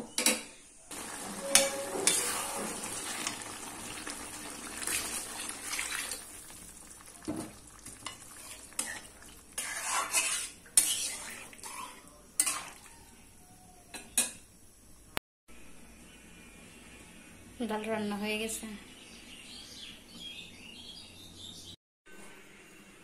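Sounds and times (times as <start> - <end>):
water pouring into pot: 0.9 - 12.8
metal spatula scraping pan: 1.0 - 3.2, 8.0 - 12.8.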